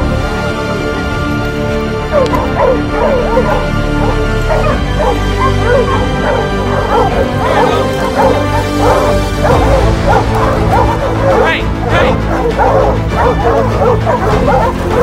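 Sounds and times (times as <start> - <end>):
background music with held notes: 0.0 - 15.0
hounds barking and baying: 0.0 - 15.0.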